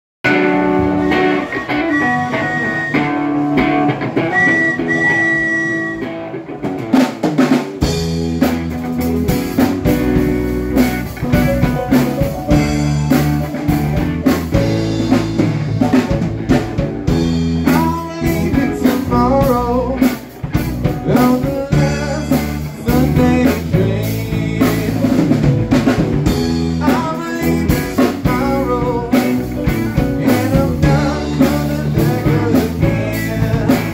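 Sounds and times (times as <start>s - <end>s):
bass guitar: 0.2s - 33.9s
drum kit: 0.2s - 33.9s
electric guitar: 0.2s - 33.9s.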